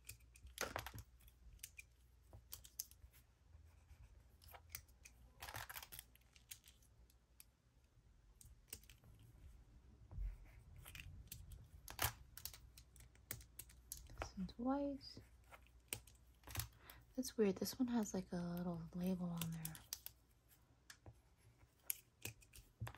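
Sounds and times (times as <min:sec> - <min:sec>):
pencils clicking and tapping: 0:00.0 - 0:03.2, 0:04.4 - 0:07.5, 0:08.3 - 0:09.2, 0:10.8 - 0:17.0, 0:17.6 - 0:20.2, 0:20.8 - 0:22.9.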